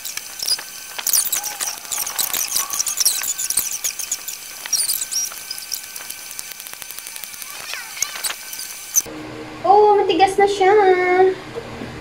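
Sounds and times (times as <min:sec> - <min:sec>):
high squeaky chirps: 0:00.0 - 0:09.1.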